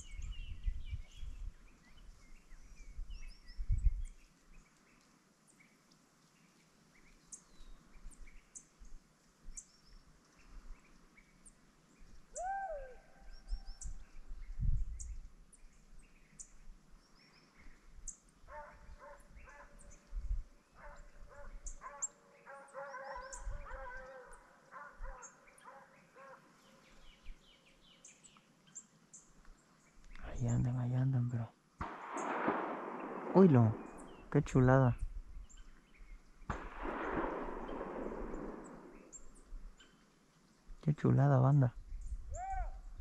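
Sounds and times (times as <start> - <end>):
small birds chirping: 0.0 - 43.0
distant dogs baying: 18.5 - 19.9, 20.8 - 26.8.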